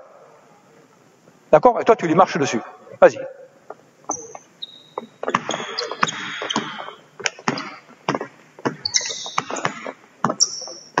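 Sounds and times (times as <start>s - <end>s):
sneakers squeaking: 4.1s - 11.0s
basketball bouncing on hardwood: 7.4s - 10.5s.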